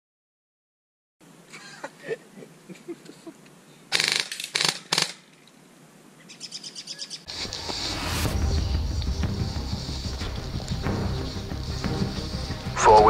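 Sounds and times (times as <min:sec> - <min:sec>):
airsoft gun firing bursts: 0:03.9 - 0:05.2
music: 0:07.3 - 0:13.0.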